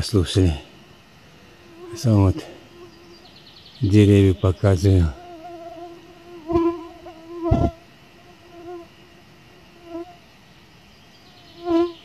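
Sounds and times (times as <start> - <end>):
mosquito whining: 5.1 - 8.9, 11.3 - 12.0.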